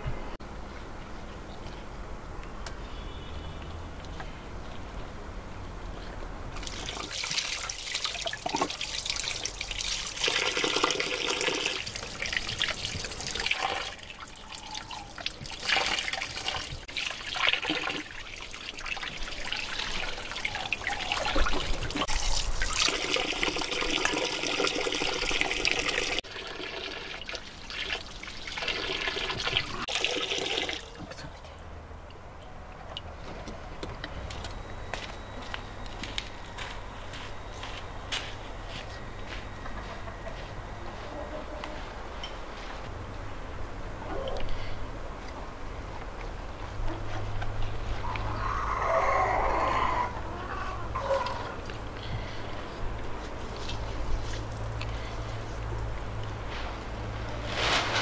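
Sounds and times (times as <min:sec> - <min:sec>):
running water splashing: 0:06.6 - 0:31.2.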